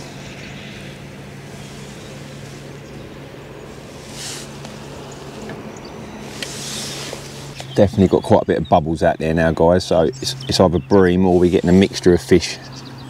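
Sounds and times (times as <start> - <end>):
distant motor humming: 0.0 - 13.0
faint outdoor background noise: 0.0 - 13.0
short rustle: 1.5 - 7.7.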